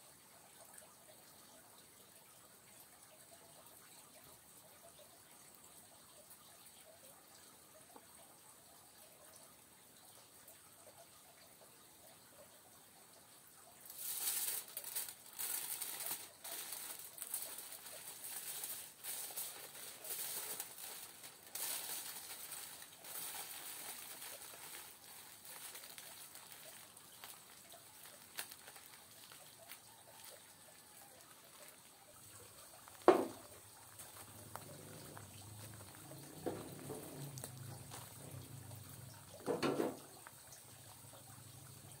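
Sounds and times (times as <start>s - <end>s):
food sizzling on hot stones: 13.8s - 42.0s.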